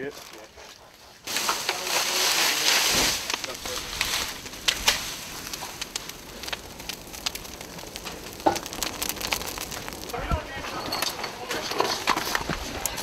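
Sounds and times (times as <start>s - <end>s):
faint fire hiss: 0.0s - 13.0s
fire crackling and popping: 0.0s - 13.0s.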